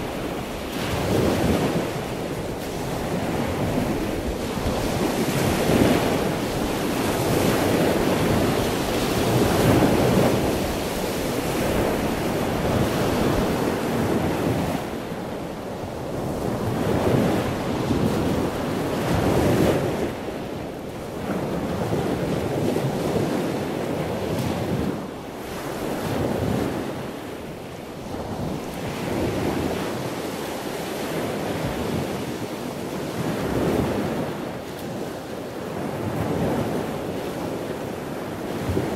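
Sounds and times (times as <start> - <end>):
rushing water: 0.0 - 20.3
wind: 0.0 - 38.9.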